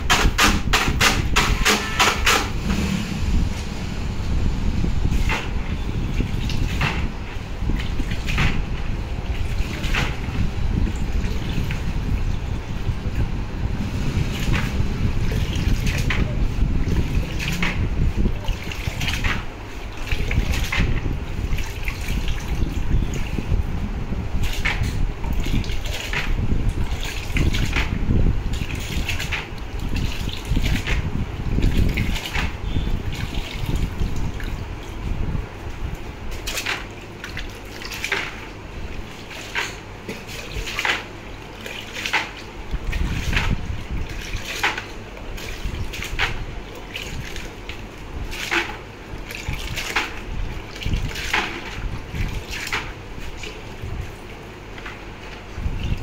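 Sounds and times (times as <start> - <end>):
water splashing and sloshing: 0.0 - 56.0
water streaming off metal pieces: 36.2 - 56.0.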